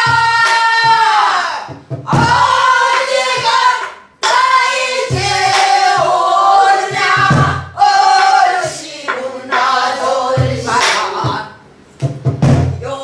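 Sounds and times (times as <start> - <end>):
voices singing in unison: 0.0 - 11.7
barrel drum strokes: 5.0 - 12.8.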